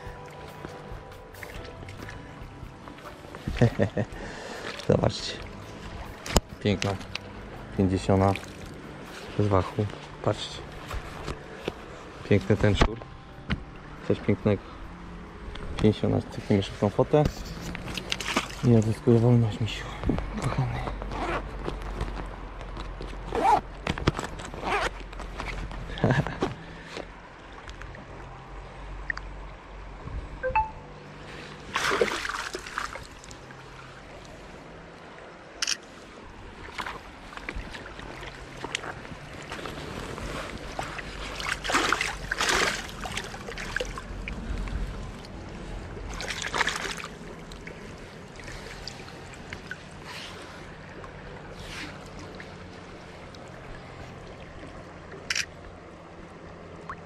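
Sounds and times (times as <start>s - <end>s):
river water running: 0.0s - 57.0s
water splashing by hand: 8.2s - 10.0s, 17.6s - 19.0s, 31.6s - 34.0s, 36.5s - 45.4s, 46.0s - 55.6s.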